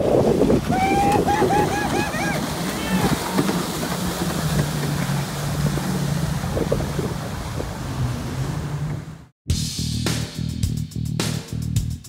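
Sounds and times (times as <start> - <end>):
wind on microphone: 0.0 - 9.2
jet ski engine drone: 0.0 - 9.3
water spray rushing: 0.0 - 9.3.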